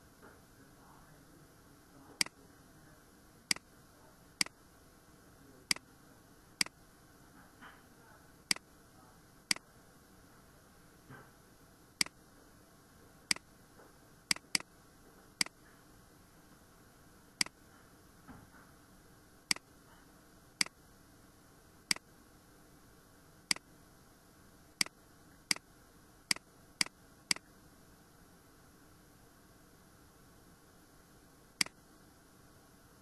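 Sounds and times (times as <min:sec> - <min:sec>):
faint steady hiss: 0:00.0 - 0:33.0
computer mouse clicks: 0:14.3 - 0:14.7, 0:24.8 - 0:25.6, 0:31.6 - 0:31.8.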